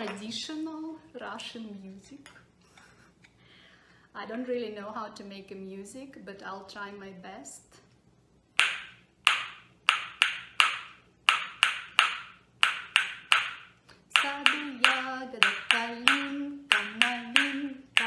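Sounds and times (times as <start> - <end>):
wooden spoons clacking: 8.6 - 18.0.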